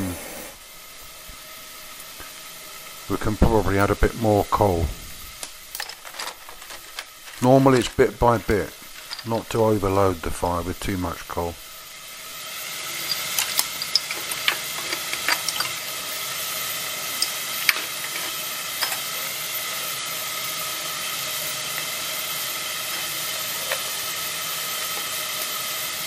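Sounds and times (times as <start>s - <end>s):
steam blower hissing: 0.0s - 26.0s
coal clicking into firebox: 12.9s - 15.9s.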